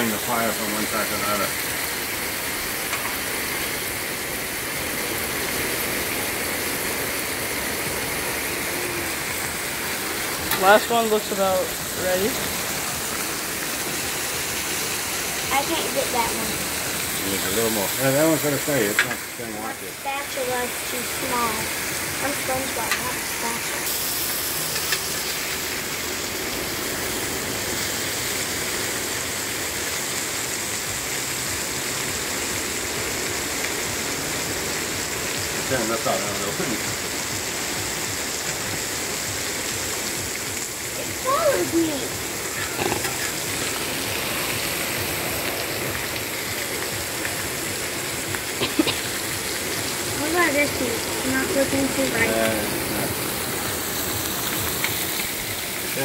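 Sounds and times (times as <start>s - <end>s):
food sizzling in a pan: 0.0s - 56.0s.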